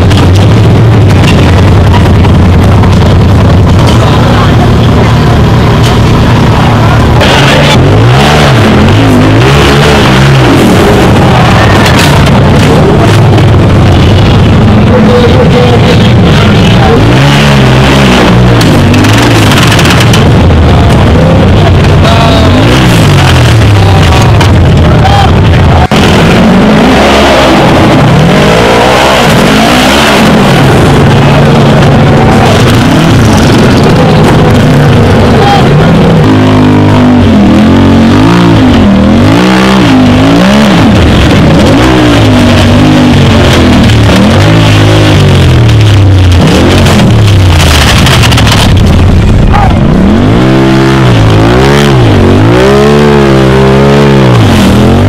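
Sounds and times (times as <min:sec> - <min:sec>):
buggy engine revving hard: 0:00.0 - 0:55.0.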